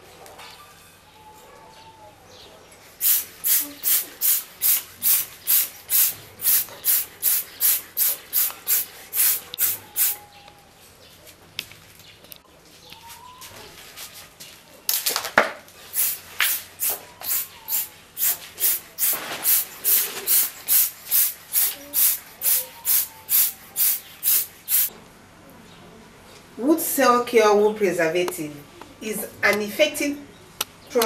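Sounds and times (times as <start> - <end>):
short hissing bursts: 3.0 - 10.2, 15.8 - 24.9.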